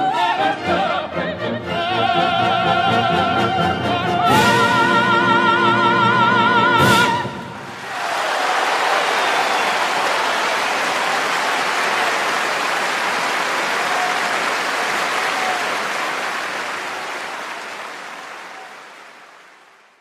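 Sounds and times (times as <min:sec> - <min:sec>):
applause: 0:07.6 - 0:20.0.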